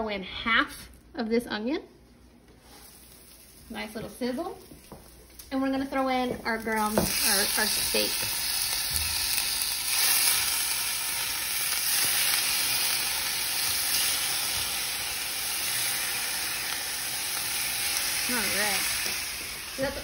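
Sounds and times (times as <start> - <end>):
steak sizzling in a skillet: 4.5 - 20.0.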